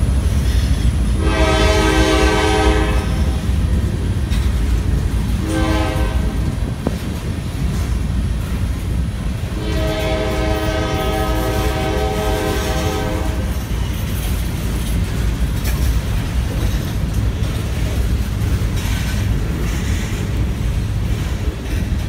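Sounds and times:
train rumbling past: 0.0 - 22.0
locomotive horn: 1.2 - 3.5, 5.4 - 6.7, 9.4 - 13.8.

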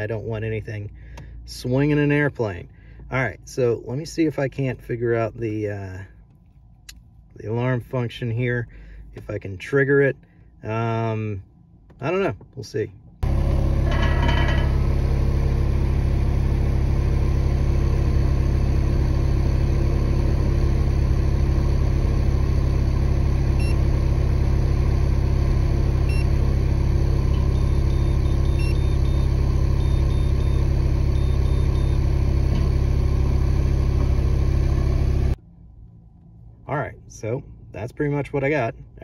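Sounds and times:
engine idling: 13.2 - 35.4.

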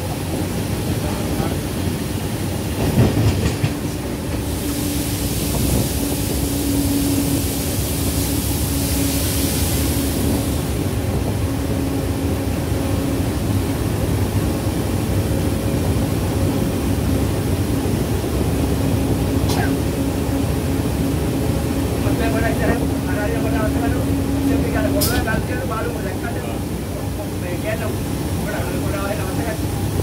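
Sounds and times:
diesel train engine hum: 0.0 - 30.0
hiss: 4.4 - 10.8.

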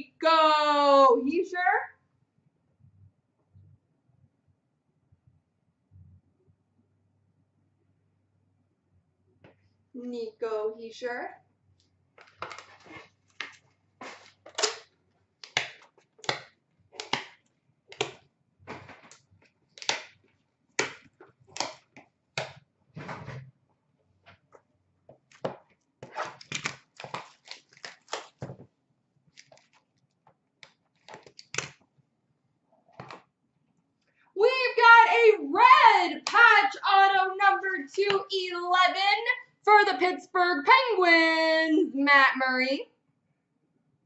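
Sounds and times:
packaging crinkling and tearing: 26.0 - 28.5, 29.3 - 31.8.

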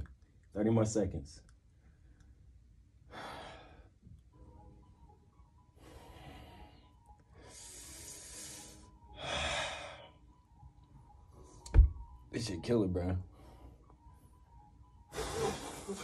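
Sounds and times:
man breathing hard: 3.0 - 4.0, 5.8 - 10.2, 15.1 - 16.0.

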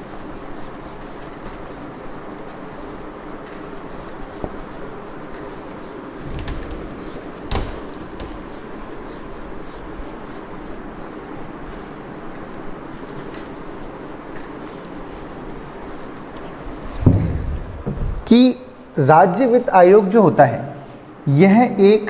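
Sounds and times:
eraser rubbing on whiteboard: 0.0 - 17.4
knocks: 6.2 - 8.4, 17.0 - 18.2.

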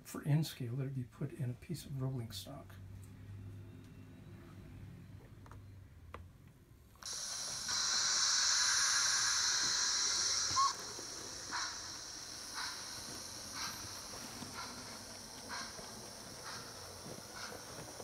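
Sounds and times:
soft steam puffs: 7.0 - 18.0
steam hiss from small speaker: 7.0 - 18.0.

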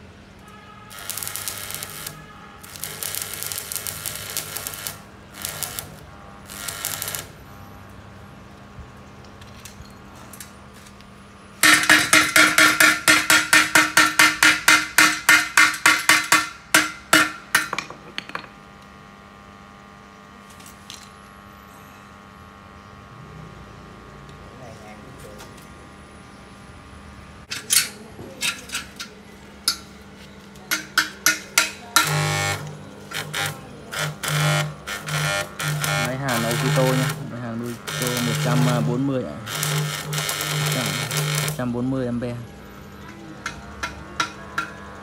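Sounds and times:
welding arc crackling and hissing: 0.9 - 7.5, 11.6 - 17.3, 30.6 - 42.5
hammer striking steel bar: 11.6 - 18.5, 30.7 - 32.2.

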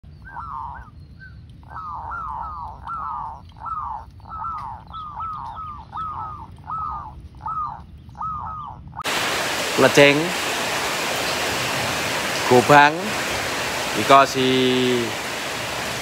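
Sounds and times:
doves cooing: 0.1 - 9.3.

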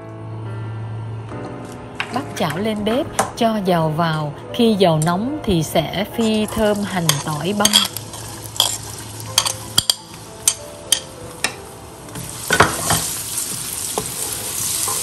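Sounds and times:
aromatics sizzling in hot oil: 6.1 - 15.0.

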